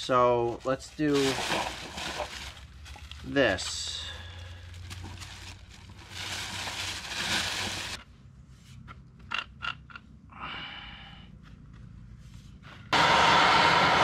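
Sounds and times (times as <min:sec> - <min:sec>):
rustling and scraping: 0:00.0 - 0:09.4, 0:11.4 - 0:13.0.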